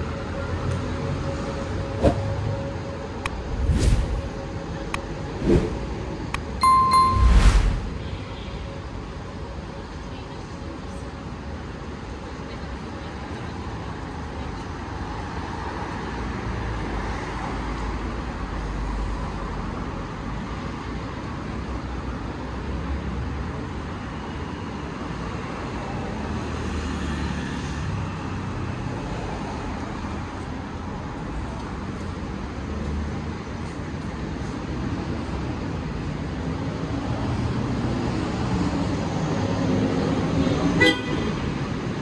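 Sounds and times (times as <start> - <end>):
road traffic passing: 0.0 - 42.0.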